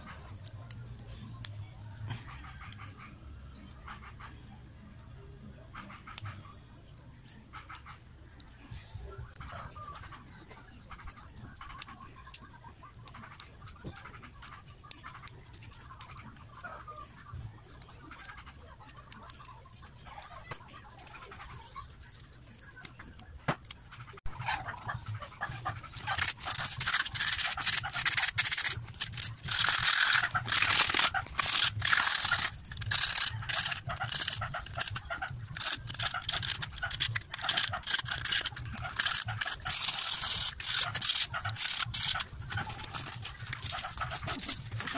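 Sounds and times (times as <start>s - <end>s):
rapid metal scraping strokes: 25.5s - 44.9s.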